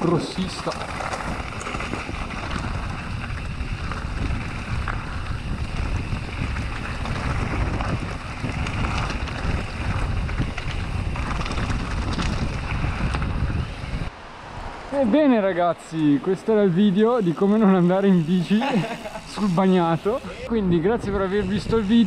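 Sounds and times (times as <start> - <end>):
bike tyres crunching on gravel: 0.0 - 20.5
bike rattling: 0.0 - 22.0
wind buffeting microphone: 0.0 - 22.0.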